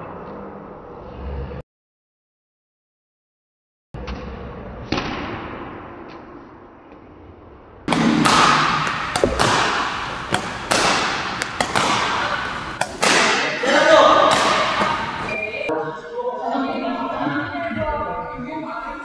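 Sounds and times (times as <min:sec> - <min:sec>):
badminton rackets hitting shuttlecocks: 0:07.9 - 0:15.4.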